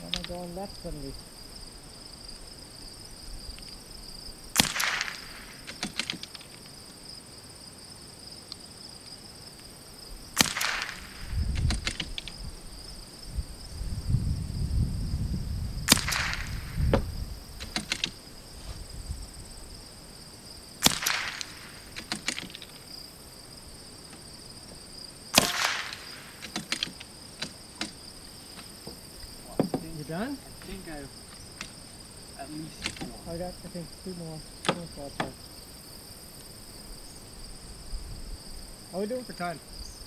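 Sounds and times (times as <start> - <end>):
high insect buzz: 0.0 - 40.0
rifle shots: 4.5 - 6.3, 10.3 - 12.2, 15.8 - 16.9, 20.8 - 22.7, 25.3 - 27.0.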